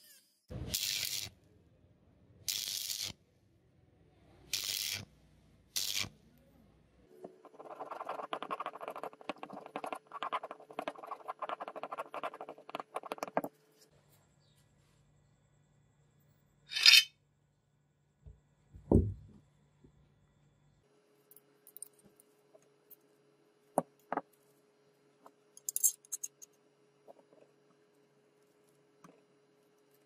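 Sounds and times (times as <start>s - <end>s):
knife blade scraping tape: 0.7s - 1.3s, 5.8s - 6.1s, 16.7s - 17.1s.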